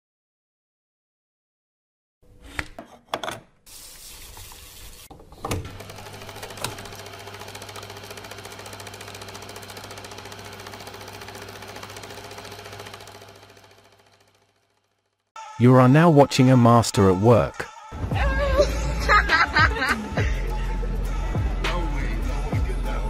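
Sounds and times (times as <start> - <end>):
film projector clattering: 5.5 - 15.2.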